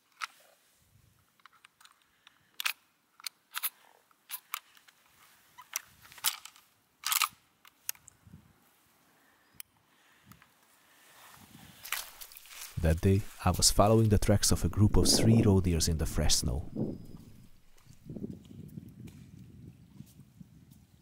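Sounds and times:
footsteps crunching in snow: 11.0s - 14.6s.

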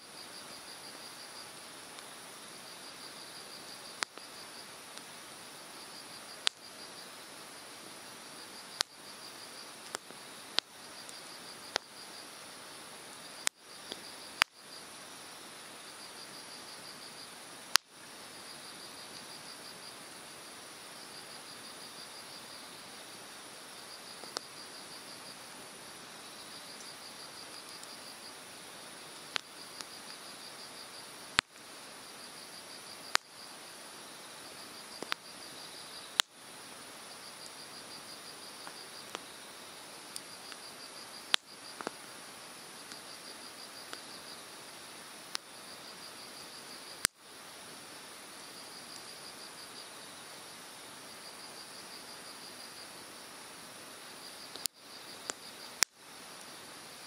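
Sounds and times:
insects trilling: 0.0s - 57.0s
campfire crackling and popping: 0.4s - 14.8s, 15.7s - 18.1s, 23.8s - 33.9s, 34.5s - 45.6s, 46.6s - 47.3s, 54.5s - 56.5s.

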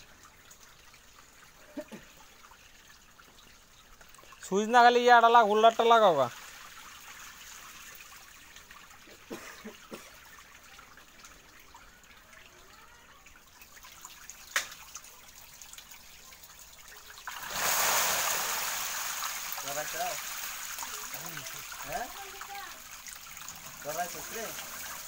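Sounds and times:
water trickling and sloshing: 0.0s - 25.0s
splashing water rush: 17.2s - 25.0s.

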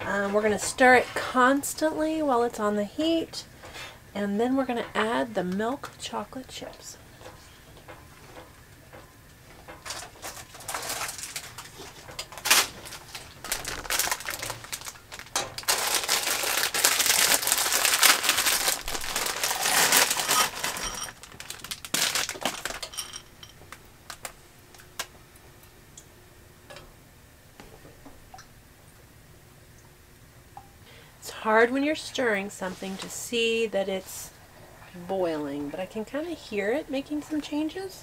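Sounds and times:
plastic bag crinkling: 9.8s - 24.4s.

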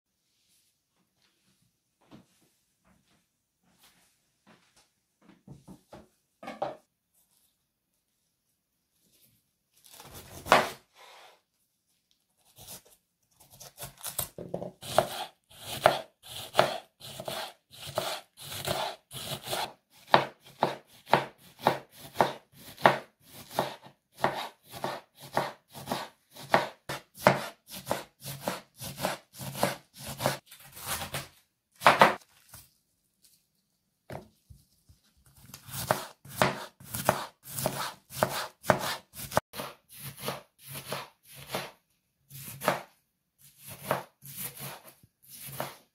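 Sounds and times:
knife chopping cabbage on board: 9.9s - 10.8s, 12.4s - 32.2s, 35.3s - 45.9s.

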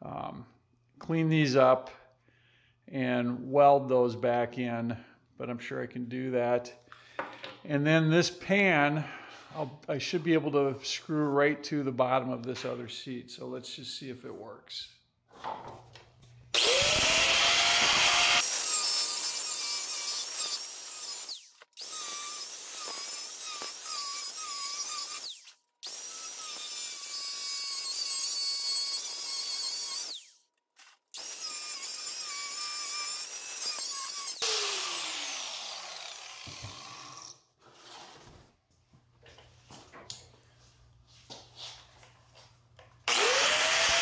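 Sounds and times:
power tool cutting plastic: 16.5s - 37.4s, 43.0s - 44.0s.

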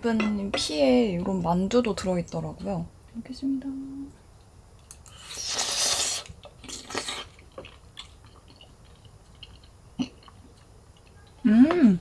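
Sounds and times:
chewing with wet clicks: 6.4s - 11.4s.

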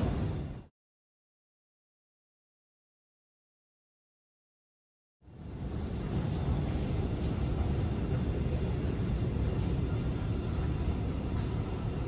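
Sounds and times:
subway station rumble: 0.0s - 0.7s, 5.2s - 12.0s.

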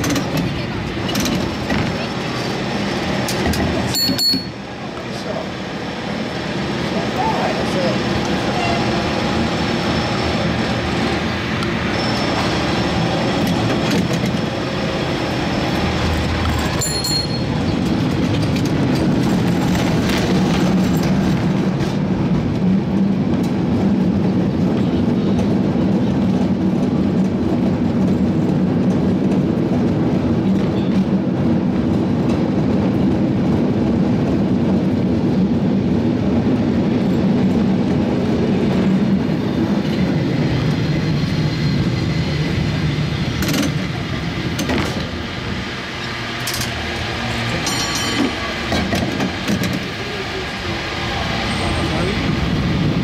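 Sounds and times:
cable car rumbling on rails: 0.0s - 53.0s
metal clanks: 47.6s - 49.8s.

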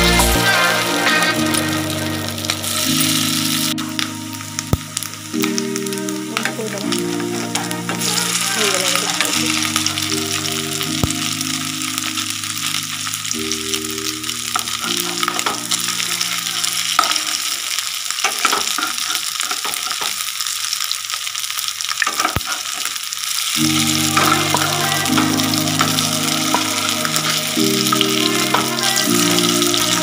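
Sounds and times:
soft background music chords: 0.0s - 17.1s, 23.6s - 30.0s
fritters sizzling in oil: 0.0s - 30.0s.

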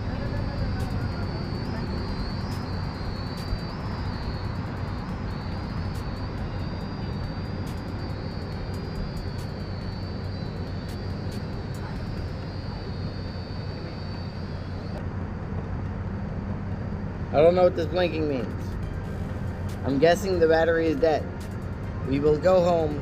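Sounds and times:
car engine idling: 0.0s - 15.0s
drone motors whining: 0.0s - 15.0s.

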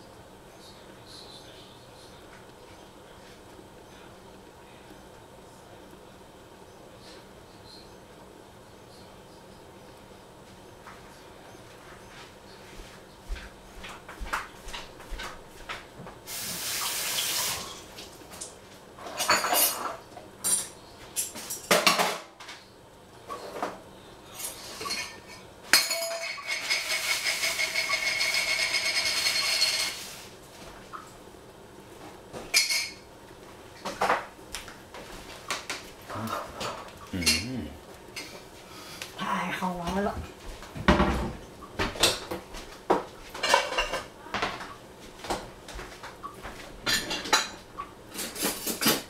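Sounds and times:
dishes and pots clinking: 18.4s - 22.6s, 23.3s - 30.2s, 32.4s - 33.1s, 35.5s - 37.6s, 40.8s - 44.7s, 46.5s - 49.0s.

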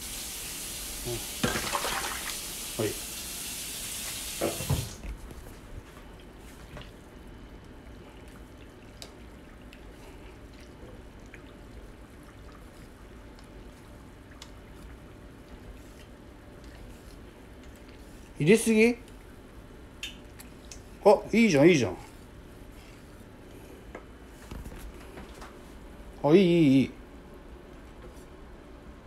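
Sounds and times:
water pouring into a steel pot: 1.3s - 3.0s.

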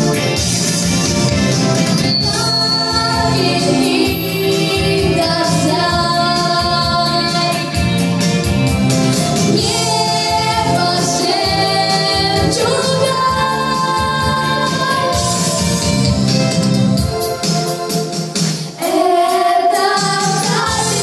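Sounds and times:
pop backing track with beat: 0.0s - 21.0s
girl singing into microphone: 2.2s - 7.7s, 9.6s - 15.2s.

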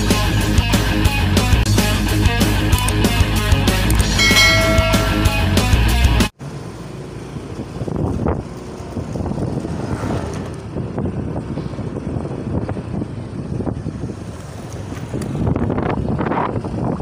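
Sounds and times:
motorcycle engines running: 0.0s - 17.0s
street traffic: 0.0s - 17.0s
wind buffeting microphone: 7.3s - 17.0s.

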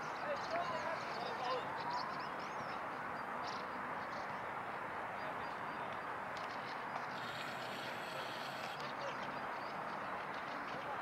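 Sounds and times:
outdoor hiss-like rumble: 6.2s - 9.0s.

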